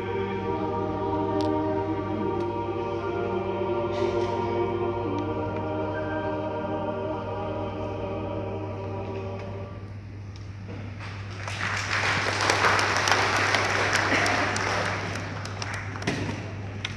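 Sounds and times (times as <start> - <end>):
church choir singing chord: 0.0 - 10.2
applause: 11.0 - 16.6.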